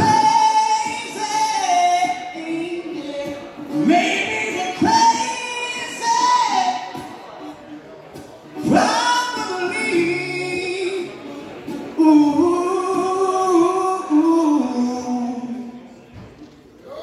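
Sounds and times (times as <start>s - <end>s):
man singing: 0.0s - 7.5s, 8.6s - 15.9s
acoustic guitar: 0.0s - 17.0s.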